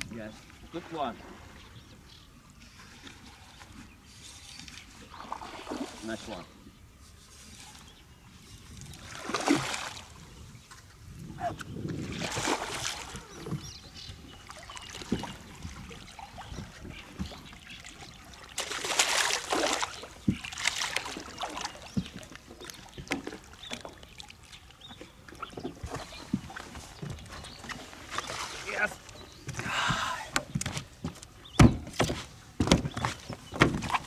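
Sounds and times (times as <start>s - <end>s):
fish splashing at water surface: 18.5s - 21.7s.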